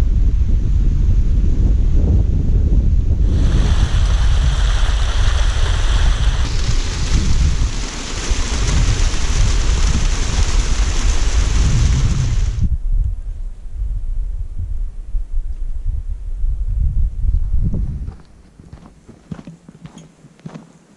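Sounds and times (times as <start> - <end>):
wind buffeting microphone: 0.0 - 19.8
stream splashing over rock: 3.3 - 12.6.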